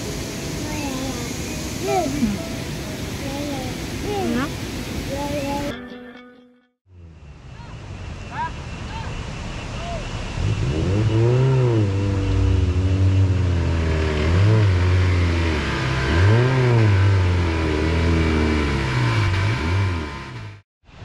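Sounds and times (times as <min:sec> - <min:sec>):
steady hiss: 0:00.0 - 0:05.7
car engine revving: 0:06.9 - 0:20.6.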